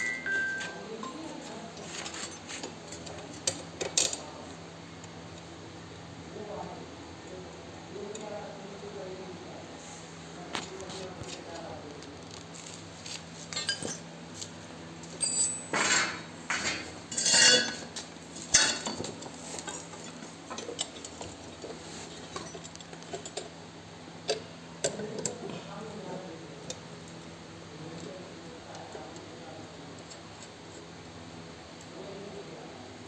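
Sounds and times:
steel parts clinking and scraping: 0:13.4 - 0:14.0, 0:15.2 - 0:23.5.

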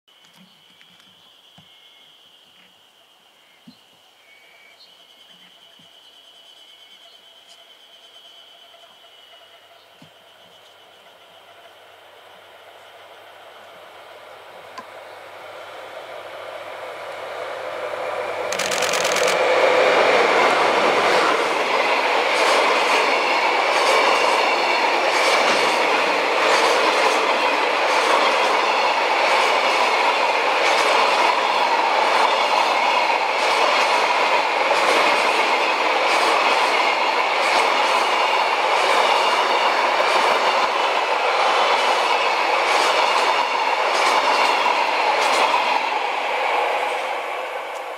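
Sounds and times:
train rolling rumble and hiss: 0:04.8 - 0:47.9
diesel locomotive engine: 0:07.2 - 0:47.9
train wheels clickety-clack: 0:18.4 - 0:47.9.

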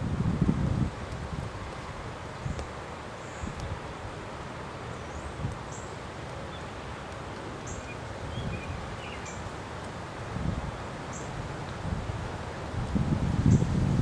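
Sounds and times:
wind buffeting microphone: 0:00.0 - 0:02.8, 0:10.2 - 0:14.0
leaves rustling: 0:00.0 - 0:14.0.

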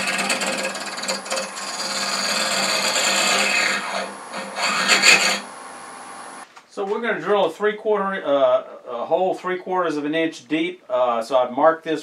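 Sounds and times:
faint motor hum: 0:00.0 - 0:06.4
lathe cutter scraping wood: 0:00.0 - 0:06.4.

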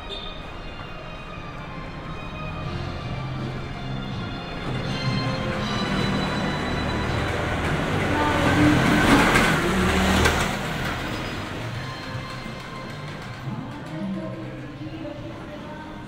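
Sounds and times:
vehicle passing by: 0:05.8 - 0:11.9.

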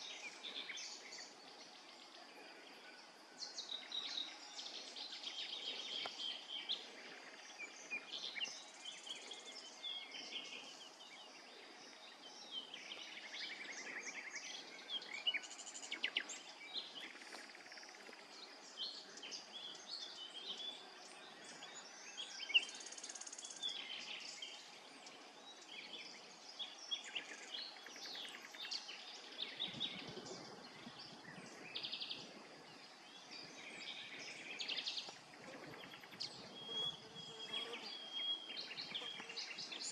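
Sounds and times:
small birds chirping: 0:00.0 - 0:39.9
insect buzzes: 0:34.1 - 0:39.9.

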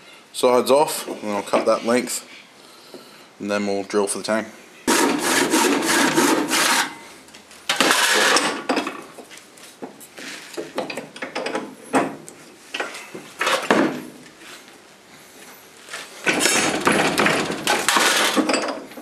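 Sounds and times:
saw cutting wood: 0:04.9 - 0:07.0.

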